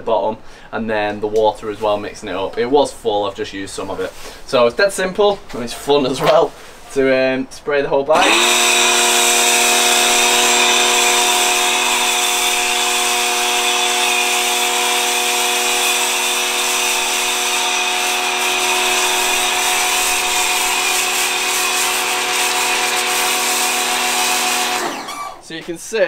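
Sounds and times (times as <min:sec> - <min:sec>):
pressure washer motor drone: 0:08.1 - 0:25.5.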